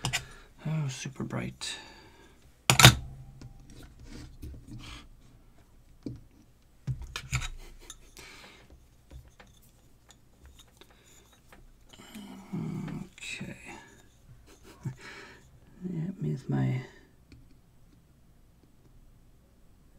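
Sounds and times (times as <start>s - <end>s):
bulb clinking on hard bench: 2.7s - 4.2s.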